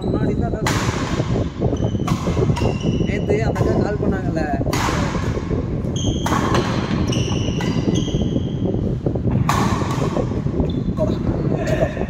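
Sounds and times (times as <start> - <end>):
rackets hitting shuttlecock: 0.6 - 11.3
shoes squeaking on wooden floor: 5.9 - 8.5.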